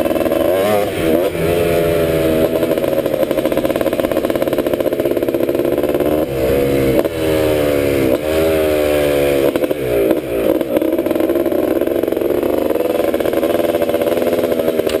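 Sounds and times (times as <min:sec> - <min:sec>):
two-stroke engine running hard: 0:00.0 - 0:15.0.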